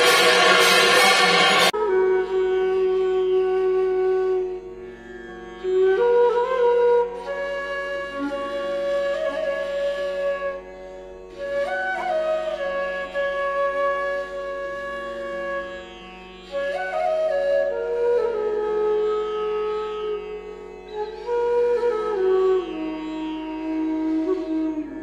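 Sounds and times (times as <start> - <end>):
steady drone: 0.0 - 1.8.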